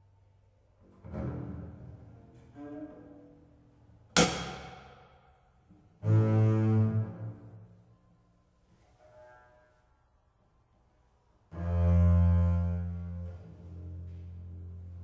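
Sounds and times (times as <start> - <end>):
bowed double bass note: 11.5 - 15.0.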